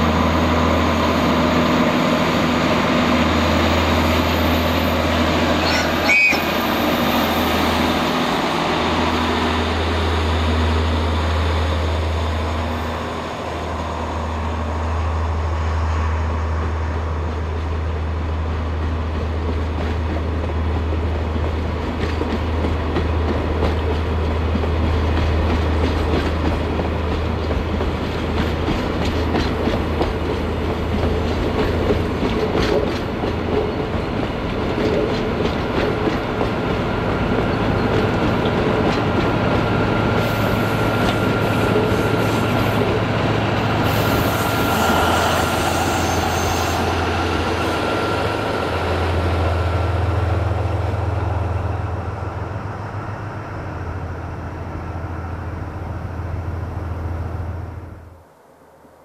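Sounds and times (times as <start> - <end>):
train wheels clattering: 19.2 - 48.6.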